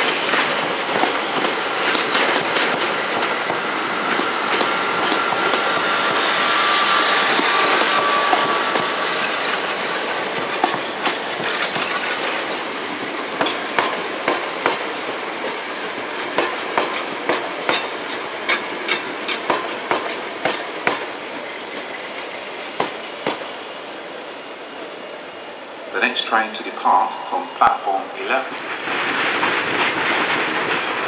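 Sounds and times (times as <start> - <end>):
train wheel clicks: 0.0 - 12.6, 13.4 - 21.1
train rumble: 0.0 - 31.0.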